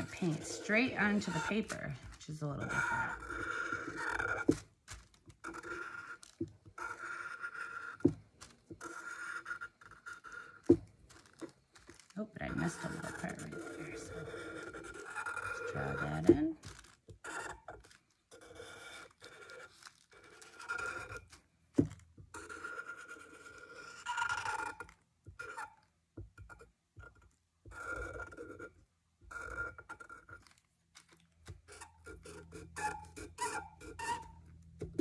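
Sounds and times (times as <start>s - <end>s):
marker scratching on paper: 0.0s - 8.2s, 8.8s - 11.5s, 12.4s - 16.6s, 17.2s - 21.4s, 22.3s - 25.6s, 27.0s - 28.7s, 29.3s - 30.5s, 31.7s - 34.4s.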